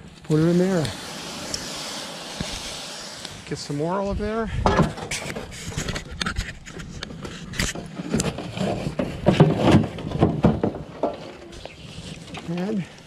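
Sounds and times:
shovel scraping metal drum: 0:00.0 - 0:04.0.

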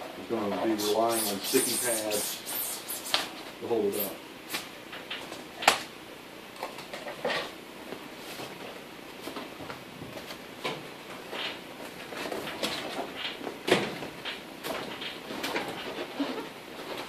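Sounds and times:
foil board crinkling and rustling: 0:11.2 - 0:17.0.

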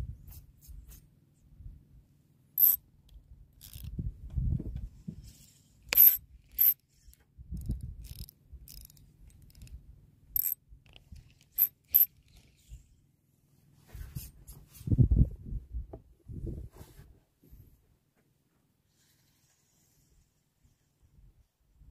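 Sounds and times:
fishing reel clicks: 0:03.6 - 0:03.9, 0:05.9 - 0:06.8, 0:07.6 - 0:09.7, 0:10.4 - 0:10.6.

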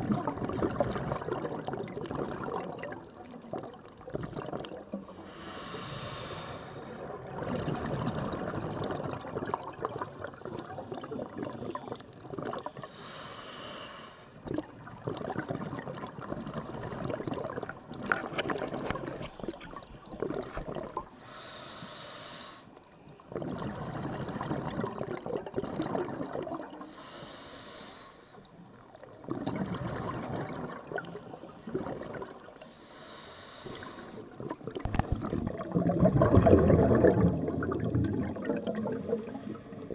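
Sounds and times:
diver breathing through regulator: 0:05.2 - 0:06.9, 0:12.9 - 0:14.3, 0:21.2 - 0:22.7, 0:26.8 - 0:28.4, 0:32.6 - 0:34.3.

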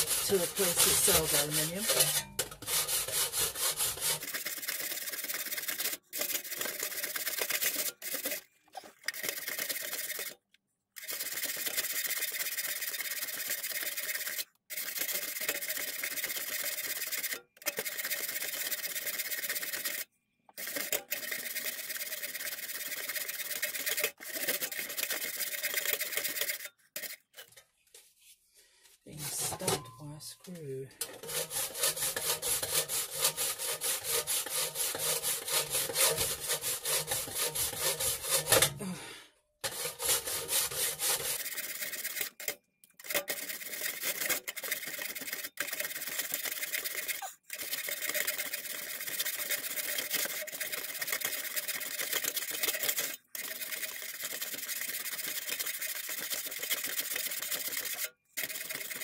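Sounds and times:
rasp filing metal sheet: 0:00.0 - 0:08.4, 0:29.1 - 0:30.0, 0:31.0 - 0:38.9, 0:39.6 - 0:59.0.

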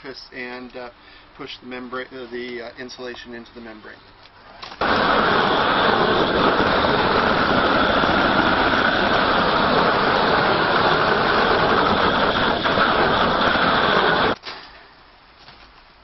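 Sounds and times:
propane torch flame rushing: 0:04.6 - 0:14.4.

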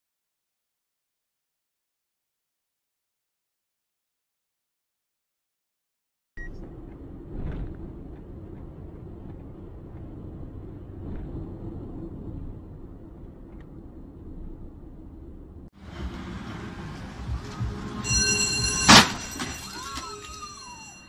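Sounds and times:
heavy lorry engine: 0:06.4 - 0:20.5
road traffic rumble: 0:06.4 - 0:20.7.

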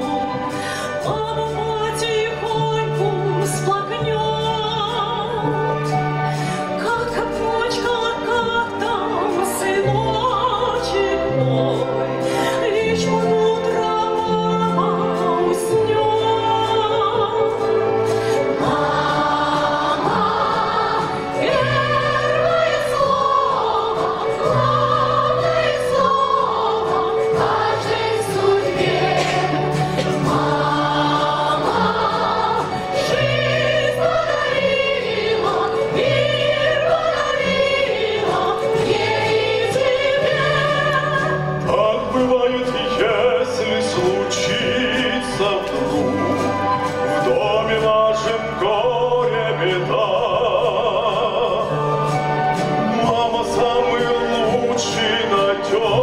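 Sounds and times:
instrumental accompaniment: 0:00.0 - 0:56.0
children's choir singing: 0:14.0 - 0:56.0.

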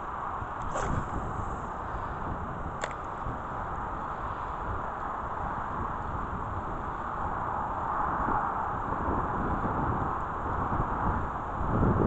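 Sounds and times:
wind buffeting microphone: 0:00.0 - 0:12.0
steady hiss: 0:00.6 - 0:02.4.

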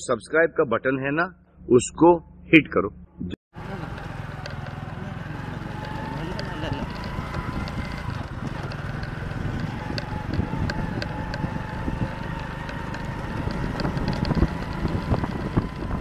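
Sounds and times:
motorcycle engine running: 0:03.5 - 0:16.0
knocks and rattles from bumps: 0:05.5 - 0:16.0.

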